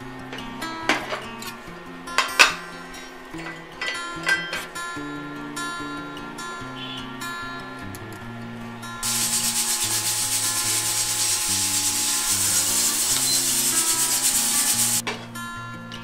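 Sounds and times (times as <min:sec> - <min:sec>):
pressure cooker venting steam: 0:09.0 - 0:15.0.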